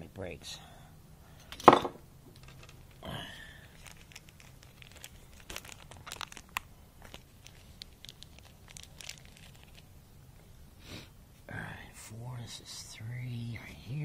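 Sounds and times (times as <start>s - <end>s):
paper packet crinkling and tearing: 3.6s - 9.9s.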